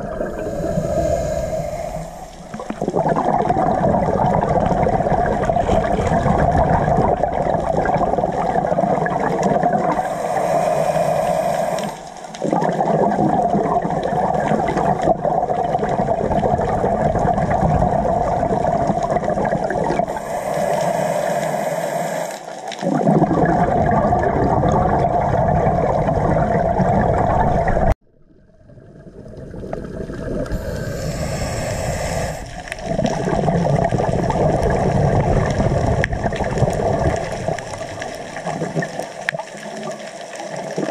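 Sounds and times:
regulator hissing inhalations: 0:00.0 - 0:02.8, 0:10.0 - 0:12.3, 0:20.1 - 0:22.6, 0:30.5 - 0:32.8
exhaled bubbles rushing: 0:00.0 - 0:40.9.

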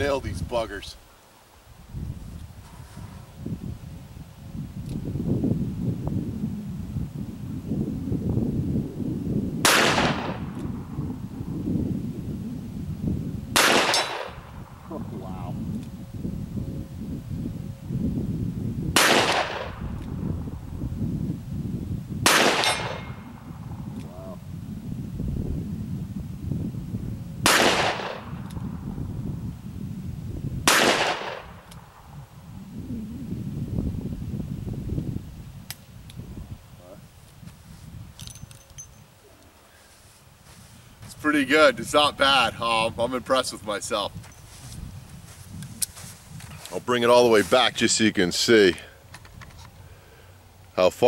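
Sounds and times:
revolver gunshot with reverb: 0:09.6 - 0:10.5, 0:13.6 - 0:14.4, 0:19.0 - 0:19.8, 0:22.2 - 0:23.2, 0:27.4 - 0:28.4, 0:30.7 - 0:31.6.

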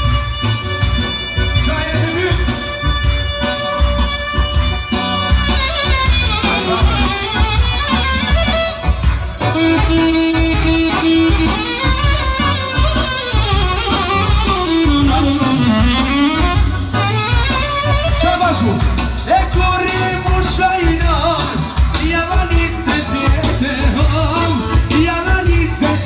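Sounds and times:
saxophone melody: 0:00.0 - 0:21.5
steady drum beat: 0:00.0 - 0:26.0.

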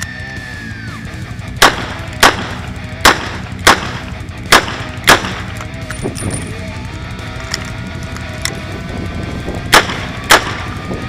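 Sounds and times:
revolver shots: 0:01.6 - 0:06.2, 0:09.7 - 0:10.9.

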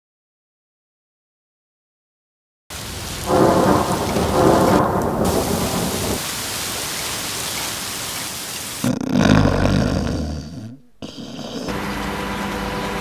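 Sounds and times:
thunder rumbling: 0:02.7 - 0:08.1
heavy rain pouring: 0:02.7 - 0:10.0, 0:11.7 - 0:13.0.

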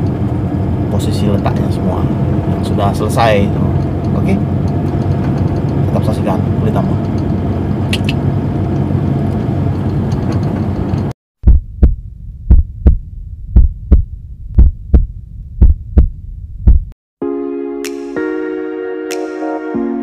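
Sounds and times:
car cabin rumble: 0:00.0 - 0:17.0
heartbeat thumps: 0:11.4 - 0:17.0.

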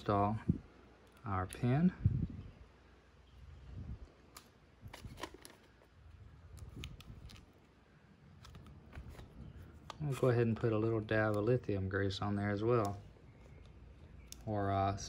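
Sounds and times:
hands handling small parts: 0:04.3 - 0:11.6.

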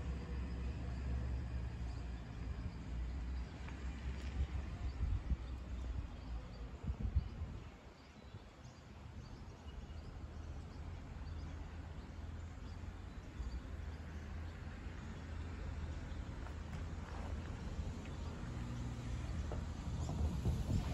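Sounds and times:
low bumps: 0:16.2 - 0:20.9.

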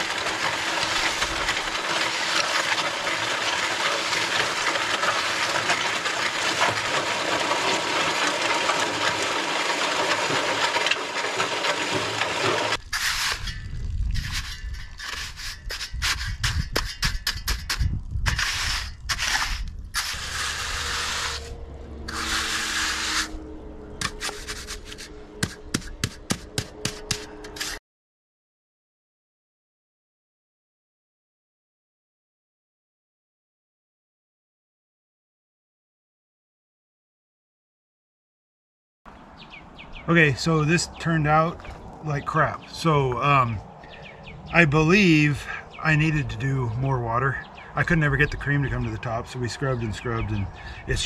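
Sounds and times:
concrete mixer running: 0:00.0 - 0:27.8
concrete pouring and raking: 0:00.0 - 0:27.8, 0:40.1 - 0:51.0
hand float scraping concrete: 0:00.0 - 0:27.8.

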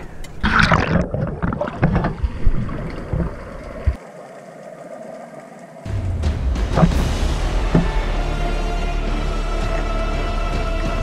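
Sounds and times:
water slapping boat hull: 0:00.4 - 0:04.0.

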